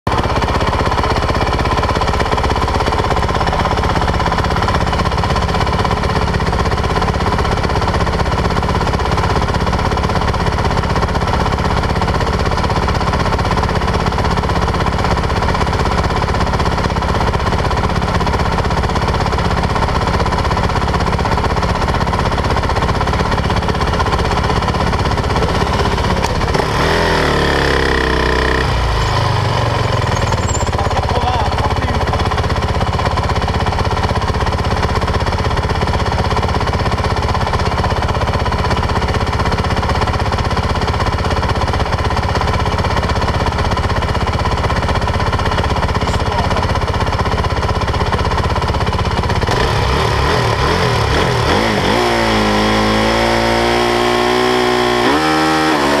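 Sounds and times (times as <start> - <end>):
motorcycle engine idling: 0.1 - 56.0
motorcycle revving and accelerating: 21.2 - 33.6, 48.3 - 56.0.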